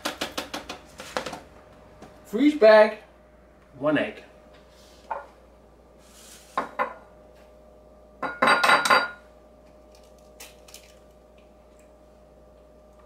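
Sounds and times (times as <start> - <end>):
ceramic bowl clattering on stone: 8.2 - 9.2.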